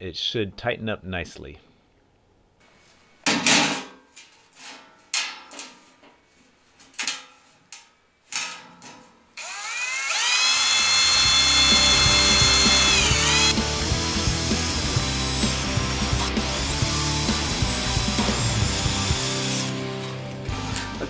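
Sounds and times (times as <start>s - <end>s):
screw gun driving screw into steel: 9.4s - 19.7s.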